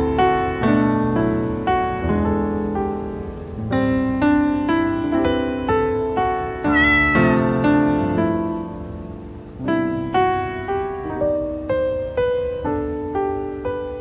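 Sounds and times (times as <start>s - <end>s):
gentle solo piano music: 0.0s - 14.0s
high sliding call: 6.6s - 7.4s.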